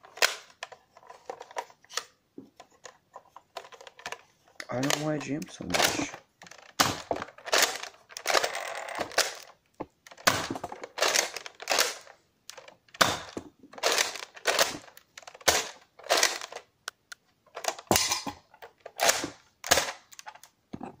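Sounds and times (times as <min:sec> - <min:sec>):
plastic toy blaster clacking: 0:05.7 - 0:16.7, 0:18.9 - 0:20.4.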